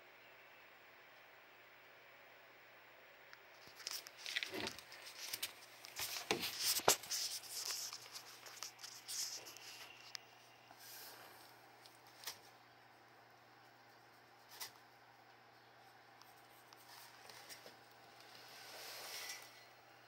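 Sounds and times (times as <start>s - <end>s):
handling rustling and scraping: 3.5s - 11.4s, 16.3s - 19.8s
hand rubbing scaly skin: 3.6s - 10.1s.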